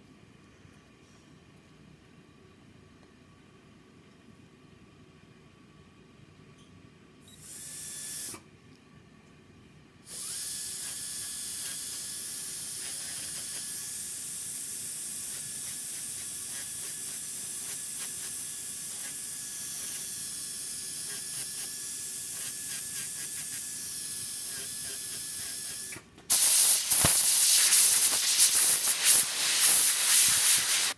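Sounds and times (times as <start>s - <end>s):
dental handpiece whining: 10.1s - 30.9s.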